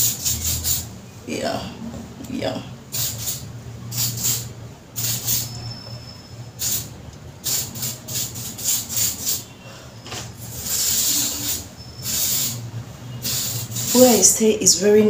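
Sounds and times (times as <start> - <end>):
hair spray hissing bursts: 0.0 - 0.9, 2.9 - 5.5, 6.6 - 9.5, 10.4 - 14.4.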